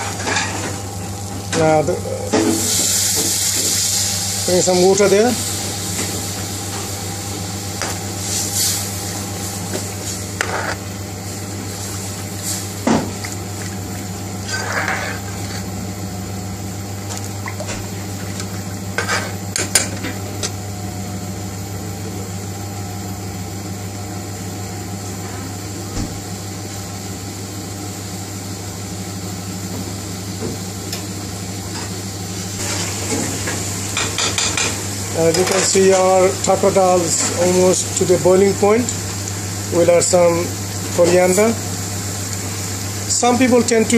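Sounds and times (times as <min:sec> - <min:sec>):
kitchen hum: 0:00.0 - 0:43.9
liquid bubbling in pan: 0:05.5 - 0:20.4.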